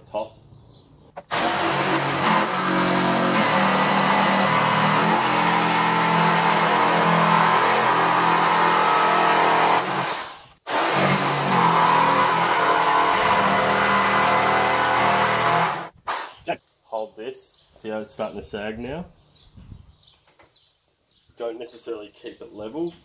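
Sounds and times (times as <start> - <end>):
jigsaw cutting wood: 1.2 - 16.4.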